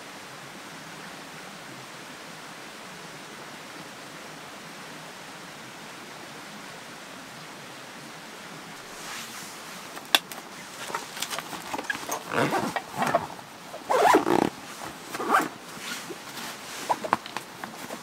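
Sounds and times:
fabric rustling: 8.8s - 18.0s
zipper rasping: 8.8s - 18.0s.

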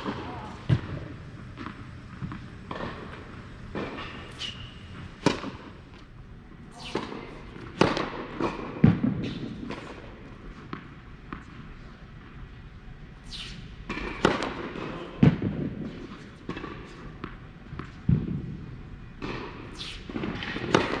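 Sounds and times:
tennis ball bouncing on hard court: 0.0s - 5.7s, 6.8s - 10.0s, 20.3s - 21.0s
racket striking ball: 0.0s - 6.0s, 6.7s - 10.0s, 13.3s - 15.5s, 19.2s - 21.0s.

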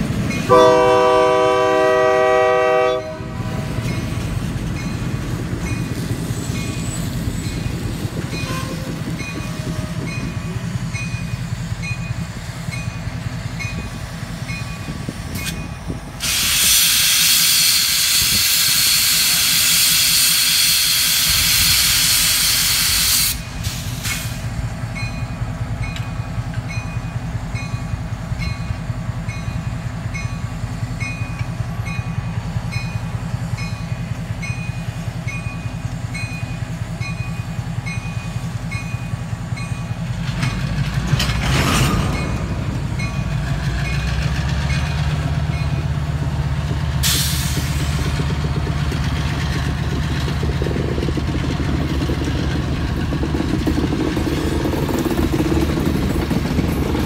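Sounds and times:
diesel locomotive idling: 0.0s - 57.0s
railroad crossing bell dinging: 0.2s - 16.0s, 24.8s - 41.0s, 41.8s - 46.3s
air hissing: 16.2s - 24.6s, 47.0s - 48.2s.

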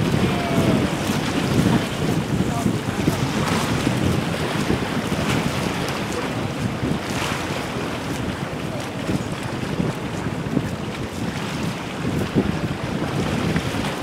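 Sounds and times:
small waves splashing: 0.0s - 14.0s
wind buffeting microphone: 0.0s - 14.0s.

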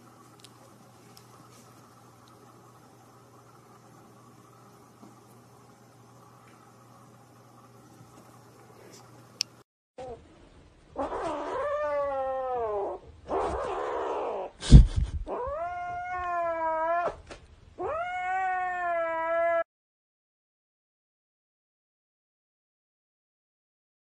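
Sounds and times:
kitten yowling: 11.0s - 14.6s, 15.3s - 17.2s, 17.8s - 19.7s.

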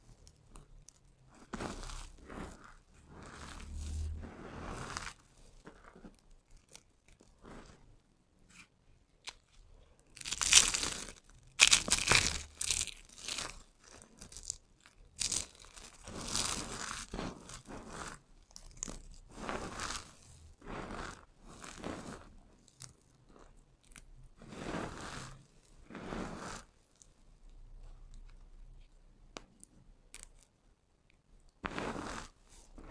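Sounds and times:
soap crunching by hand: 9.2s - 20.2s.

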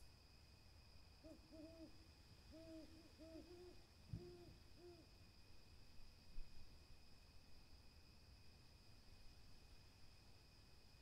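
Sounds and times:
owl hooting softly: 1.2s - 5.2s.

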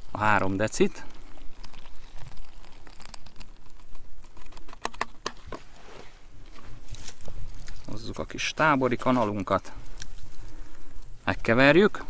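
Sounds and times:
water pouring: 0.0s - 4.4s
foil pouch crinkling: 0.0s - 5.5s, 6.5s - 11.4s
plastic bottle clicks and crinkles: 0.9s - 5.6s.

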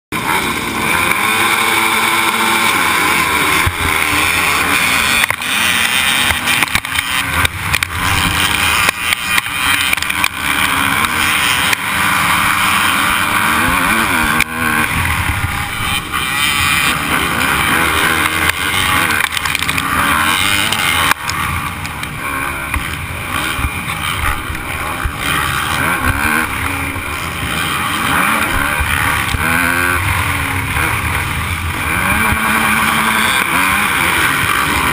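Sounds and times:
dirt bike engine revving: 0.1s - 34.9s
pack of dirt bike engines: 0.1s - 34.9s.

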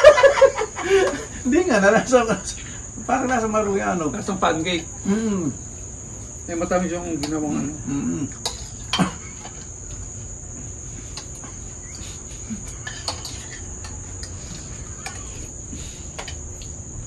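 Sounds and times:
crickets trilling: 0.0s - 17.0s
spoons clicking against bowls: 7.2s - 7.4s, 8.3s - 9.7s, 11.1s - 15.5s, 16.1s - 16.8s.

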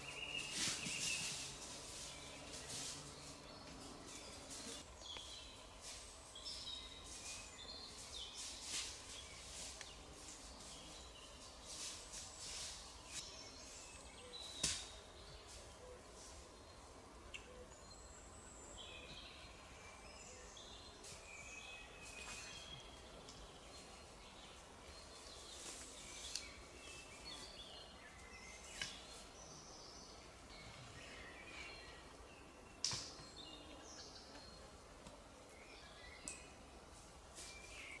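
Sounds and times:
songbirds singing: 0.0s - 38.0s.

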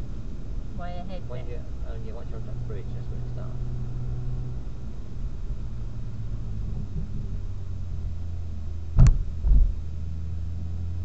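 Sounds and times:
car engine running at low revs: 0.0s - 11.0s
loud thumps: 9.0s - 9.8s.

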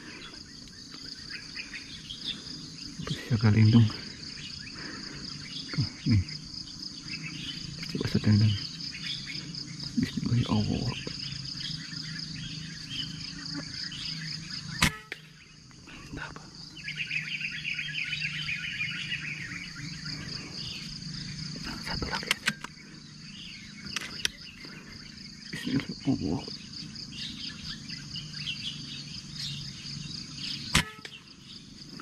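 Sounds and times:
chirping: 0.0s - 32.0s
crickets and insects droning: 0.0s - 32.0s
air rifle shot: 14.8s - 15.2s, 30.7s - 31.2s.

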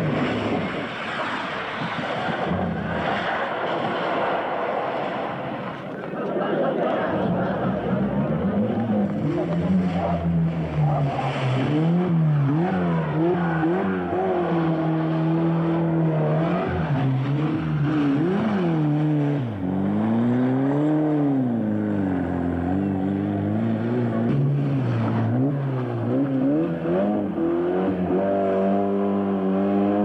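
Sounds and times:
rally car engines revving: 0.0s - 30.0s.

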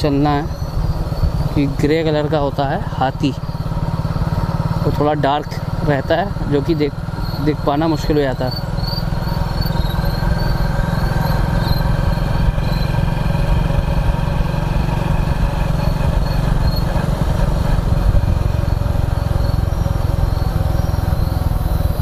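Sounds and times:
motorcycle engine running: 0.0s - 22.0s
crickets chirping: 0.2s - 4.5s, 7.2s - 12.9s, 15.8s - 16.9s, 18.6s - 22.0s.

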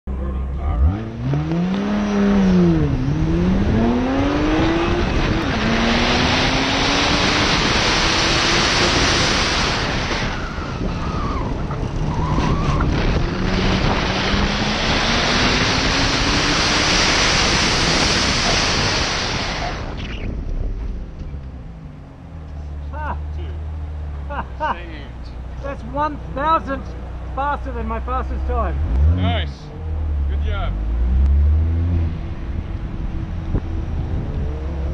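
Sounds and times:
car engine accelerating hard: 0.1s - 25.1s, 25.9s - 34.9s
wind rush on microphone: 2.2s - 21.2s, 31.6s - 34.9s.

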